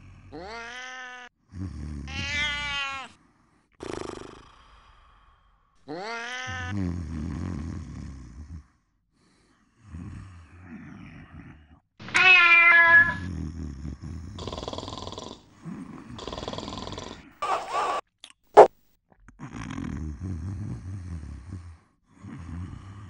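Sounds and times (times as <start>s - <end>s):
cat meowing: 0.6s - 1.3s, 2.1s - 3.1s, 6.0s - 6.7s, 12.1s - 13.3s
man snoring: 1.5s - 2.2s, 3.8s - 5.6s, 6.7s - 11.4s, 13.3s - 17.4s, 19.5s - 23.0s.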